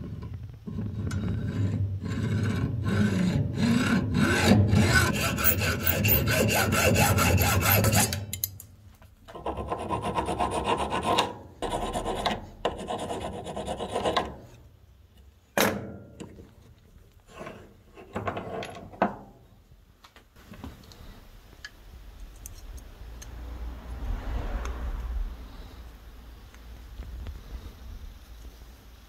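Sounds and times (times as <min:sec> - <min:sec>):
hand file rasping on steel: 0:01.0 - 0:08.4, 0:09.4 - 0:14.4.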